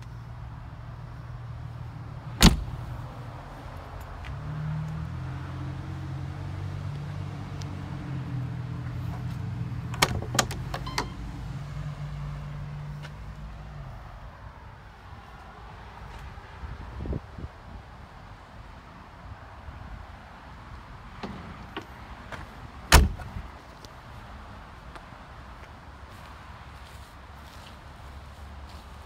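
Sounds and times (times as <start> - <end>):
car door slamming: 2.4 - 2.9, 21.2 - 23.4
door handle and latch clicks: 9.9 - 11.2.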